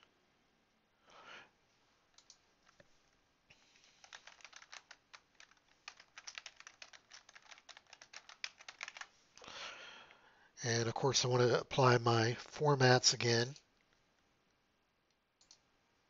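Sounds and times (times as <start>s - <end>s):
typing on computer keyboard: 2.2s - 2.8s, 3.8s - 9.1s.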